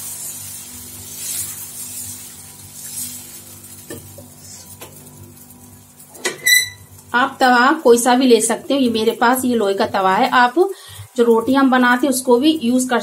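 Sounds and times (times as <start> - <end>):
batter sizzling on hot iron: 0.0 - 13.0
brief high ringing tone: 6.4 - 6.8.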